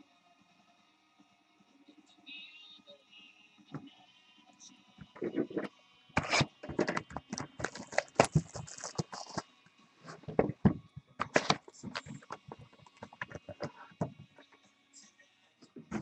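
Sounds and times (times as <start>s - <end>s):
packaging ripping: 6.2s - 7.0s, 7.6s - 9.4s
packaging crinkling: 6.2s - 9.4s
tapping on packaging: 6.2s - 9.4s, 10.2s - 13.7s.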